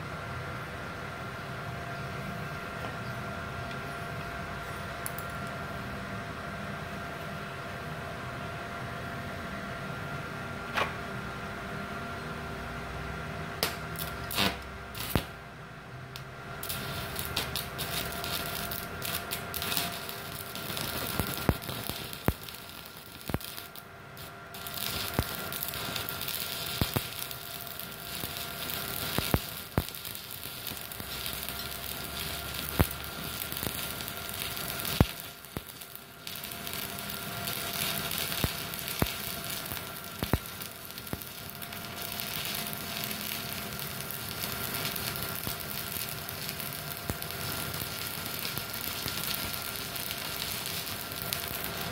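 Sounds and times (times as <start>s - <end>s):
welding arc crackling and popping: 13.6s - 15.4s, 16.1s - 51.9s.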